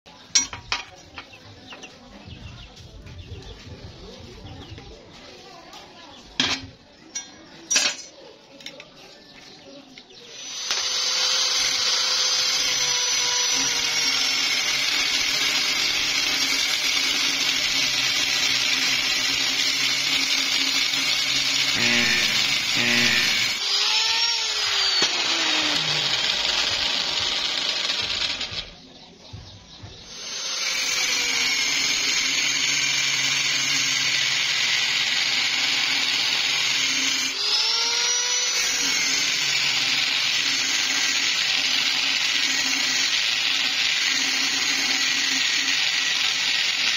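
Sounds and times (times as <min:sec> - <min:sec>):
angle grinder cutting steel: 0:10.1 - 0:28.8, 0:30.0 - 0:46.9.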